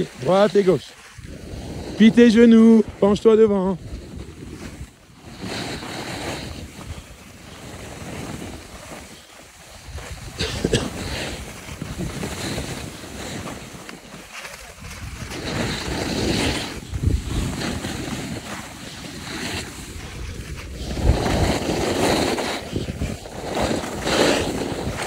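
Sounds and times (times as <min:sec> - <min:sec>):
skis scraping over snow: 0:00.0 - 0:25.0
wind buffeting microphone: 0:01.2 - 0:08.9, 0:09.7 - 0:13.8, 0:14.6 - 0:25.0.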